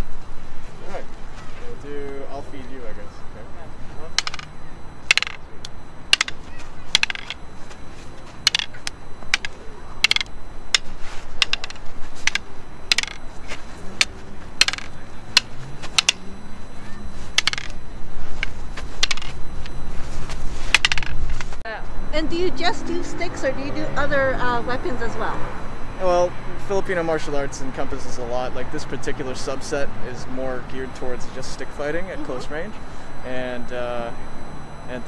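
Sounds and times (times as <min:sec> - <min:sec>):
wooden sticks clacking: 0:04.1 - 0:07.4, 0:08.4 - 0:16.4, 0:17.2 - 0:19.8, 0:20.7 - 0:21.6.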